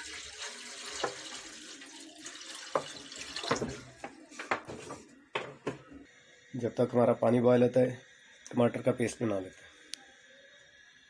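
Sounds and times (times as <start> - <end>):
water pouring into metal pot: 0.0 - 4.0.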